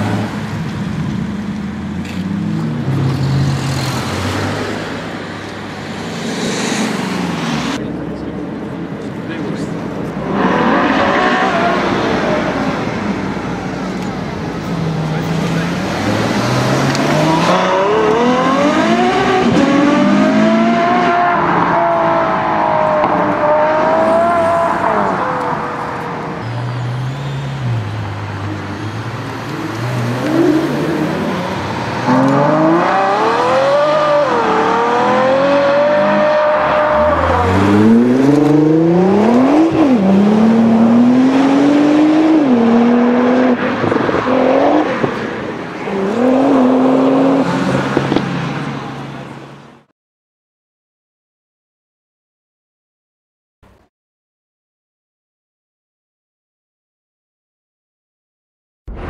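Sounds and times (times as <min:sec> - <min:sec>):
sports car engine accelerating: 0:29.5 - 0:45.2.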